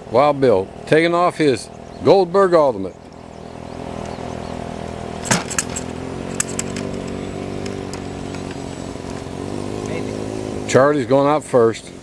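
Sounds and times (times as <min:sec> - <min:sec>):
electric starter whirring: 0:03.0 - 0:10.6
model airplane engine running: 0:03.0 - 0:12.0
sharp clicks: 0:05.2 - 0:09.2.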